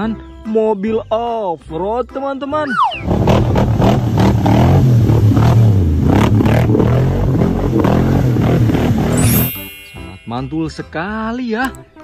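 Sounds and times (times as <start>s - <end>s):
off-road vehicle engine revving: 3.0s - 9.2s.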